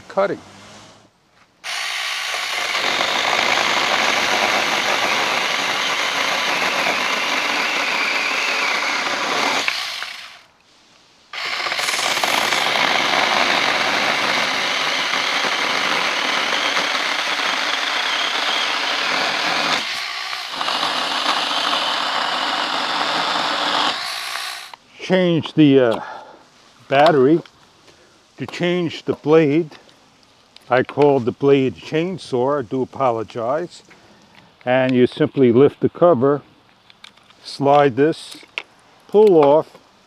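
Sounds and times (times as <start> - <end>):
cordless chainsaw cutting branch: 0.2 - 10.5, 11.3 - 24.8.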